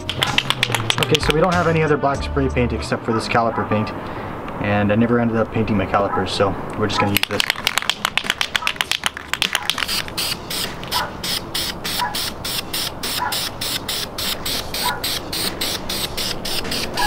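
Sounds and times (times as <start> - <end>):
spray paint can hissing: 0.0 - 1.2, 7.2 - 17.0
background music with even beat: 0.0 - 3.0.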